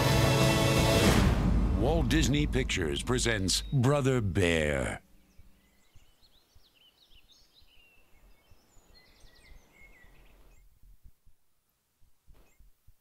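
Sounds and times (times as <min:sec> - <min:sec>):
faint low background noise: 0:00.0 - 0:13.0
birds chirping and trilling: 0:02.6 - 0:10.7.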